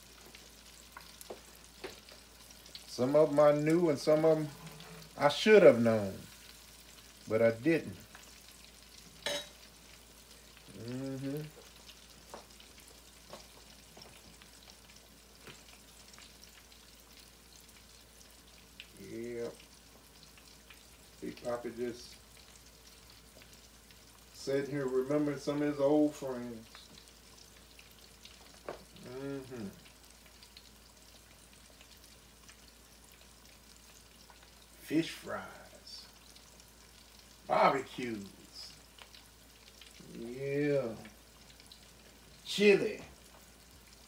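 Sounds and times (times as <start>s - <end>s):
fish frying in hot oil: 0.0s - 44.0s
man humming: 10.7s - 11.6s, 29.0s - 29.8s.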